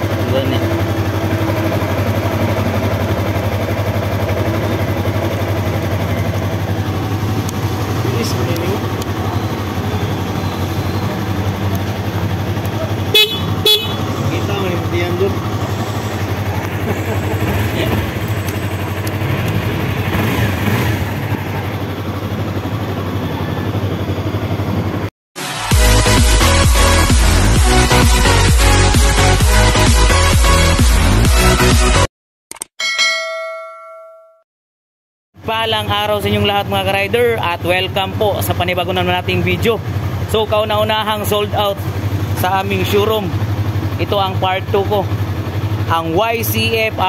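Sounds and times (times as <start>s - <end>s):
motorcycle engine idling: 0.0s - 25.1s, 35.5s - 47.0s.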